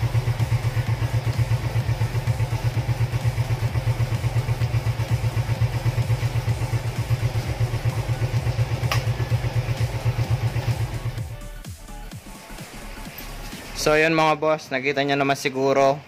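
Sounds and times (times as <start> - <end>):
motorcycle engine idling: 0.0 - 11.4.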